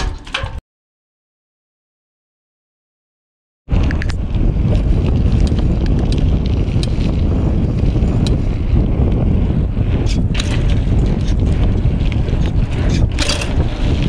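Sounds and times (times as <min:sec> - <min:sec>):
low rumble of bicycle ride: 0:03.7 - 0:14.0
wind rushing over microphone: 0:03.7 - 0:14.0.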